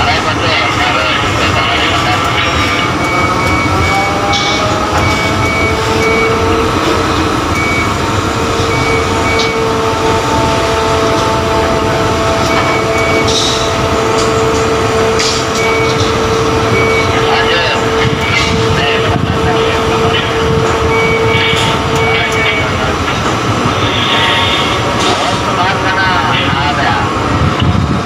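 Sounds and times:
high warning beeps: 0.6s - 6.8s, 7.5s - 9.8s, 11.4s - 13.8s, 15.4s - 23.0s
crane motor whine: 2.8s - 19.3s.

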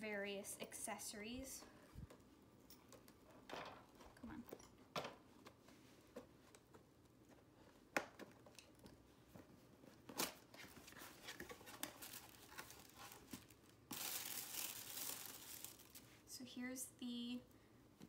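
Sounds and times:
packaging rustling: 10.0s - 16.2s
tissue paper crinkling: 10.6s - 16.3s.

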